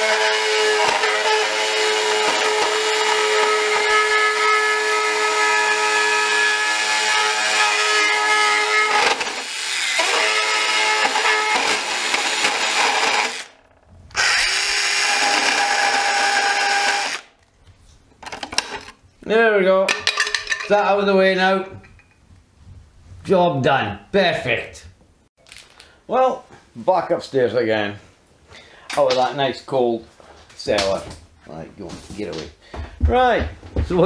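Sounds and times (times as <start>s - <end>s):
mini chain saw cutting plastic: 0.0s - 17.3s.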